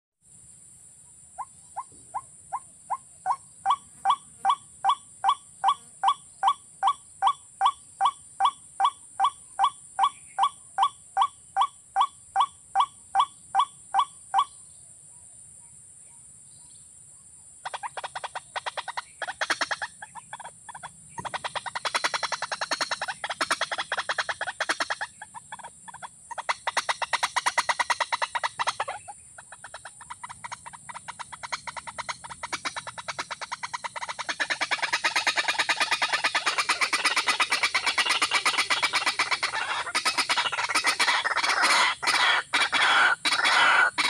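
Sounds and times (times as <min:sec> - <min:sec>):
watercock calls: 0:17.6 - 0:44.0.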